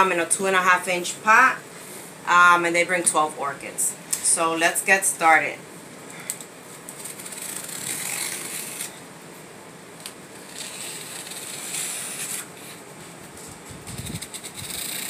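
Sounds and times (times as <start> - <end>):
packing tape slit on cardboard: 6.4 - 9.0, 10.0 - 12.8, 13.9 - 15.0.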